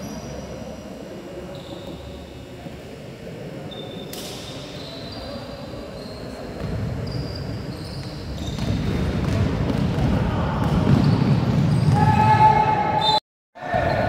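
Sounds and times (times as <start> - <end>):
sneakers squeaking: 1.4 - 2.3, 3.7 - 14.0
basketball bouncing: 8.4 - 12.1.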